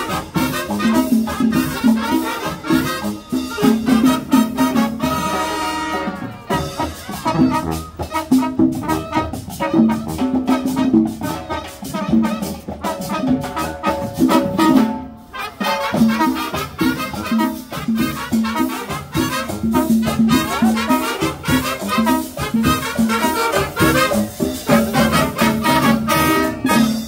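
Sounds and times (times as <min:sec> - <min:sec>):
marching band playing salsa: 0:00.0 - 0:27.0
steady drum beat: 0:00.0 - 0:27.0.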